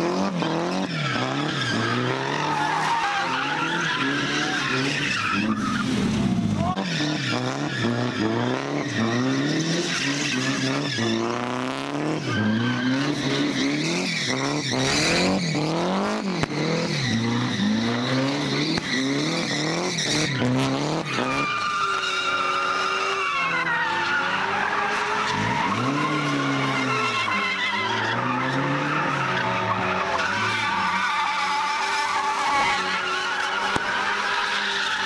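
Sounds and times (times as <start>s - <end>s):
car engine revving: 0.0s - 35.0s.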